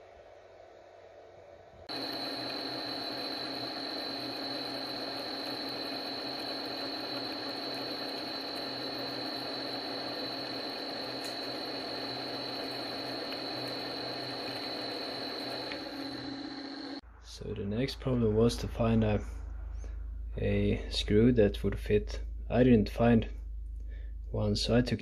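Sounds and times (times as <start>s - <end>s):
lathe humming with high whine: 1.9s - 17.0s.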